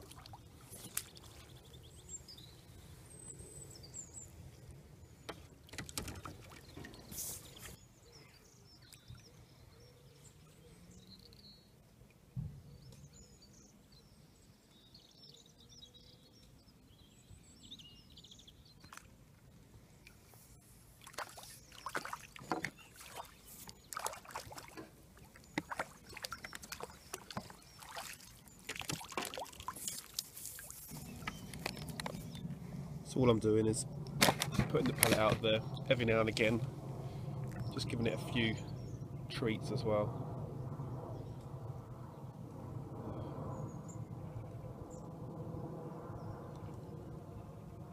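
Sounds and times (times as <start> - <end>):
water splashing and dripping: 0.0 - 1.5, 5.6 - 7.8, 21.0 - 32.2
faint high bird chirps: 6.5 - 11.7.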